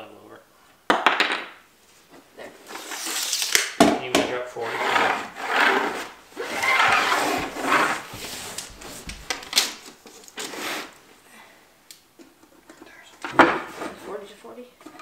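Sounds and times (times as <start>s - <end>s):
scraping on plywood floor: 4.6s - 9.5s, 10.4s - 11.0s.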